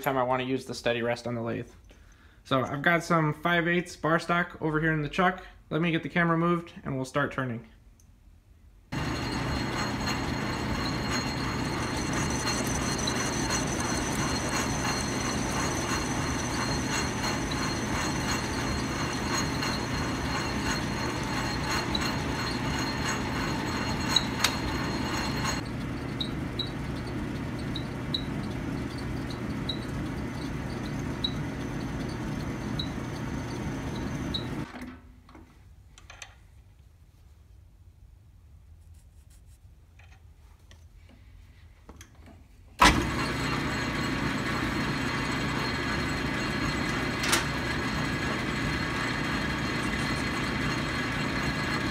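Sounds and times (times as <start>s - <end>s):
lathe motor hum: 8.9s - 34.7s, 42.8s - 51.9s
lathe cutting noise: 9.0s - 34.6s, 42.8s - 51.9s.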